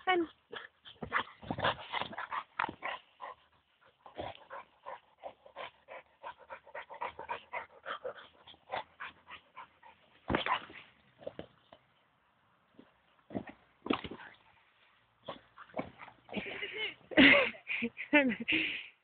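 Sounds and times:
dog panting hard: 0:00.5 - 0:10.1.

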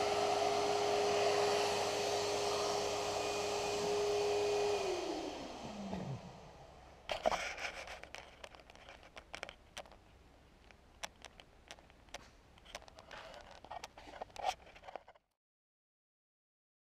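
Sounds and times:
soft rustle: 0:07.1 - 0:15.2.

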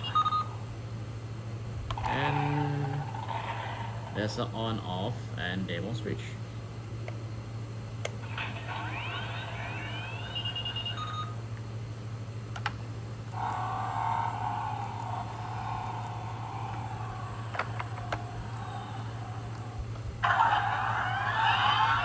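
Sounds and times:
toy engine sound effect: 0:02.0 - 0:04.2, 0:08.2 - 0:11.3, 0:13.3 - 0:22.0.

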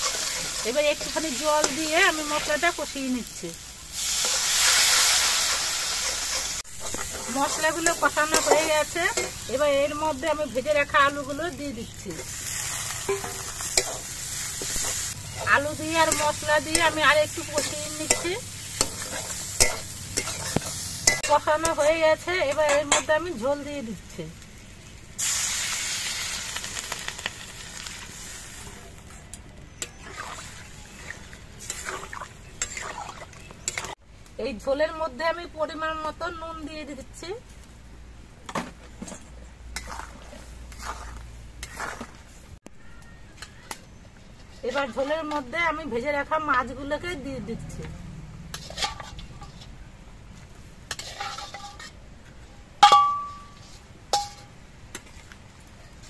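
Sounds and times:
metal spatula scraping pan: 0:00.0 - 0:02.6, 0:04.1 - 0:09.8, 0:12.2 - 0:23.2, 0:29.9 - 0:34.0, 0:39.8 - 0:42.2, 0:48.5 - 0:49.8, 0:50.9 - 0:52.0
water sizzling in hot oil: 0:00.0 - 0:29.0, 0:30.0 - 0:34.0
sharp metallic clanks: 0:52.8 - 0:53.6.

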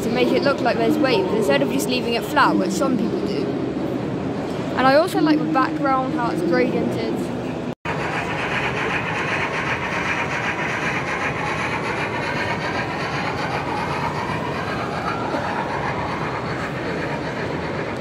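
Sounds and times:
model train rolling clatter: 0:07.9 - 0:18.0.

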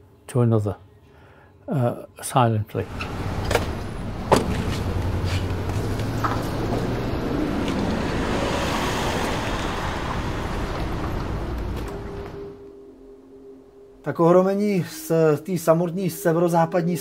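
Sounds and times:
car driving past: 0:02.8 - 0:12.7
traffic hum: 0:02.8 - 0:12.9.

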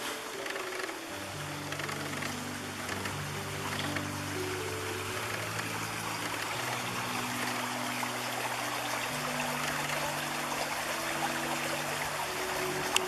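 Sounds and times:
river babbling over rocks: 0:00.0 - 0:13.0.

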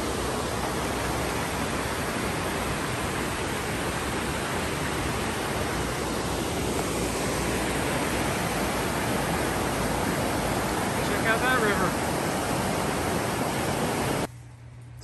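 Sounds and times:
stream rushing over rocks: 0:00.0 - 0:14.3.

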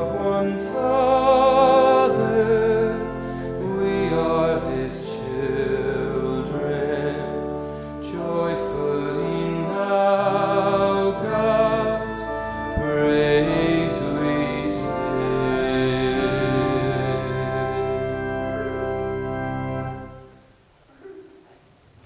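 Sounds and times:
man singing a hymn: 0:00.0 - 0:20.3
organ accompaniment: 0:00.0 - 0:20.6.

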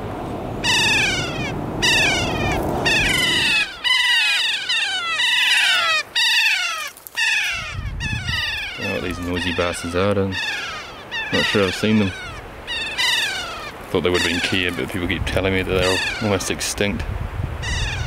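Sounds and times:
parrot shrill screeches: 0:00.6 - 0:14.7, 0:15.8 - 0:16.5, 0:17.6 - 0:18.0
low rumble: 0:01.2 - 0:03.8.

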